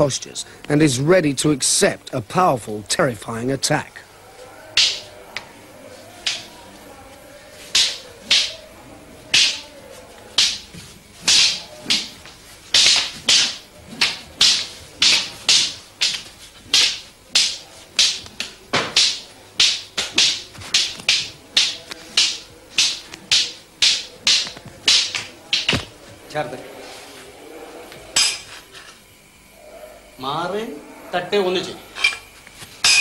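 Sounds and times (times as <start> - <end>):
wooden staffs clacking together: 4.7 - 5.5, 6.2 - 6.6, 7.6 - 8.7, 9.3 - 9.7, 10.3 - 26.0, 28.2 - 28.5, 32.0 - 33.0.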